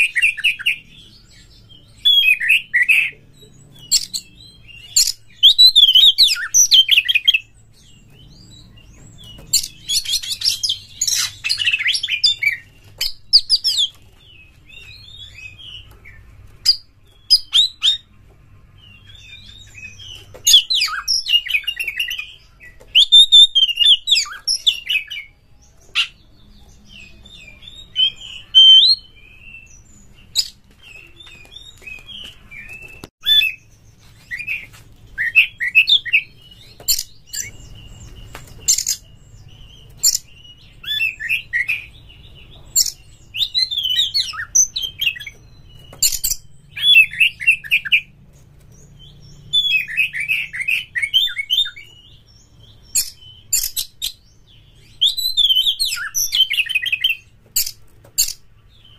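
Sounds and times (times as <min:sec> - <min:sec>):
bird singing whistles and chatter: 0:00.0 - 0:14.0, 0:19.0 - 0:48.1.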